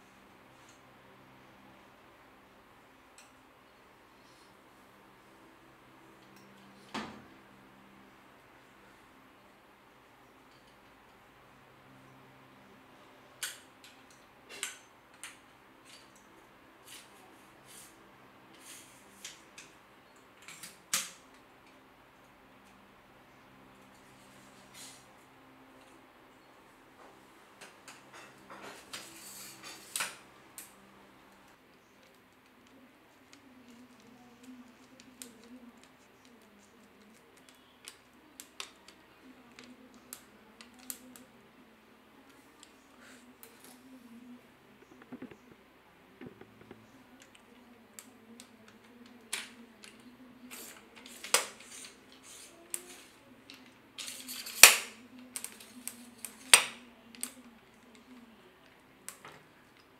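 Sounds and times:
low steady hum: 21.2 - 51.0.

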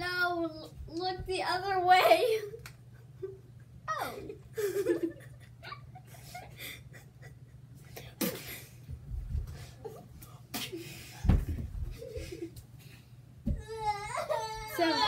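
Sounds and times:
steady low hum: 0.0 - 15.0
children giggling: 3.1 - 7.6.

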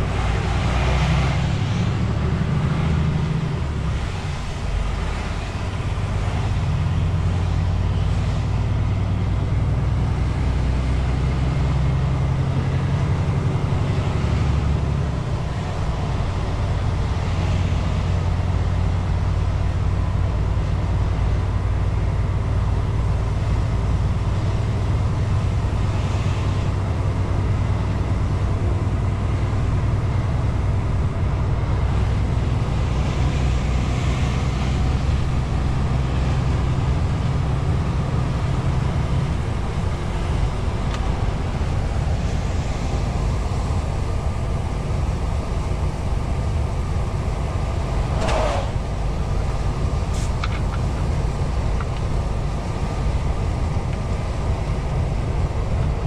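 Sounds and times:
diesel engine drone: 0.0 - 56.0
faint road noise: 0.0 - 56.0.

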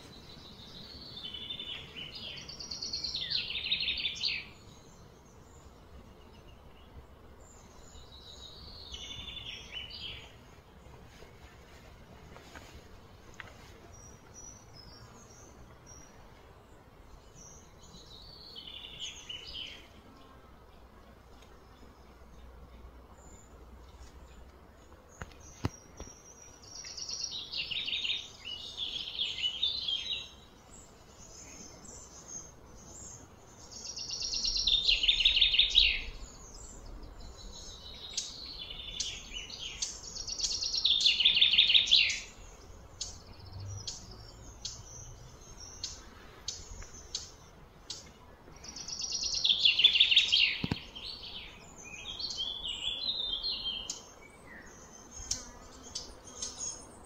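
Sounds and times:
songbird trilling and chirping: 0.0 - 10.3, 25.2 - 57.0.

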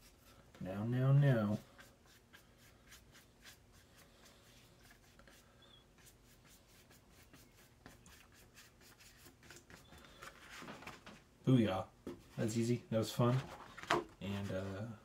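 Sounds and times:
paintbrush scratching on paper: 0.0 - 0.4, 1.1 - 10.6.

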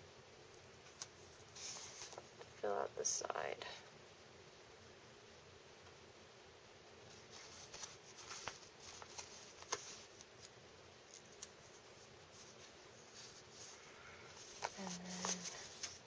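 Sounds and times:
paper stickers rustling and clicking: 7.3 - 10.5, 11.1 - 11.8, 14.4 - 16.0.

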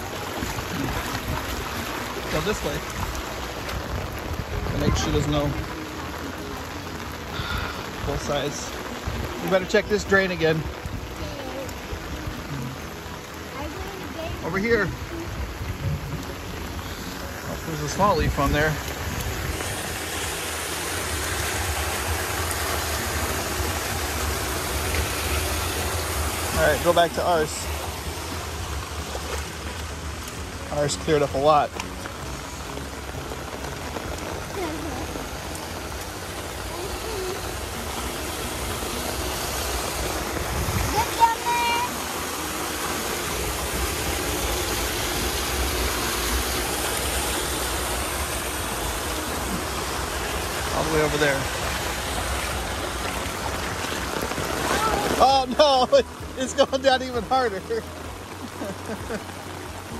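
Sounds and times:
heavy rain falling: 0.0 - 59.9
water pouring into storm drain: 0.0 - 59.9.

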